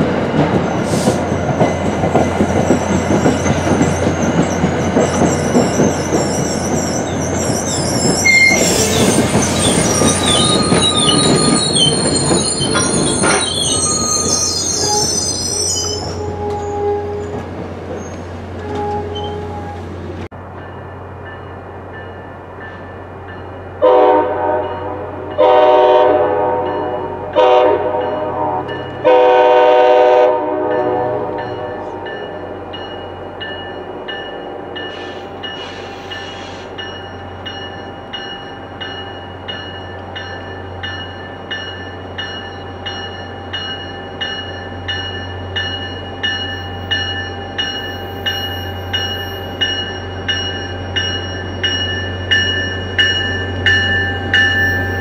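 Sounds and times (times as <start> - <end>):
bell ringing: 5.3 - 16.3, 31.4 - 55.0
locomotive horn blasts: 15.9 - 17.4, 18.6 - 19.9, 23.8 - 32.1.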